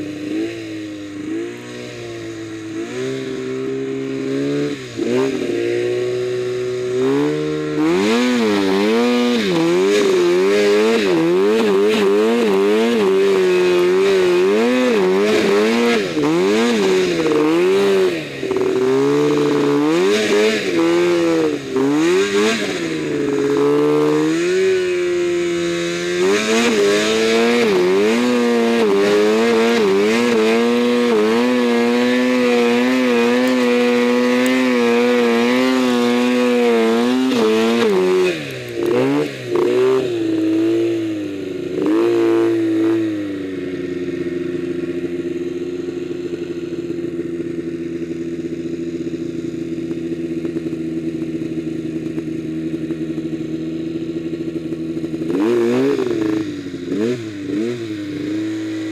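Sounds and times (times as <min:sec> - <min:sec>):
snowmobile engine running hard: 0:00.0 - 0:58.9.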